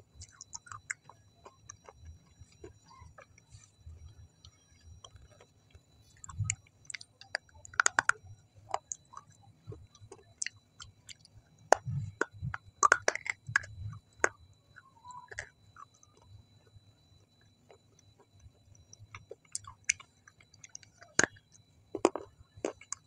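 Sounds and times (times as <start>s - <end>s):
chewing food: 0.0s - 23.0s.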